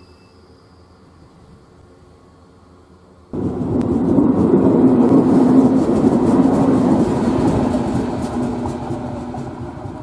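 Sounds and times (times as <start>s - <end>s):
diesel locomotive engine running: 0.4s - 10.0s
wheels clicking on rails: 3.4s - 10.0s.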